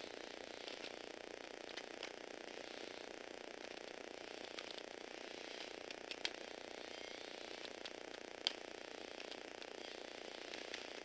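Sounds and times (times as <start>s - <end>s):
small motor and gears whirring: 0.0s - 11.0s
sharp clicks: 5.8s - 6.4s.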